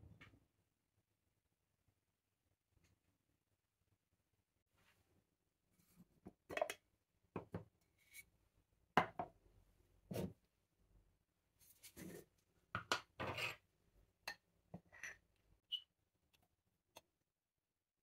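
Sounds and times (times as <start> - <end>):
glass jar knocks and scrapes on stone: 13.2 - 13.6.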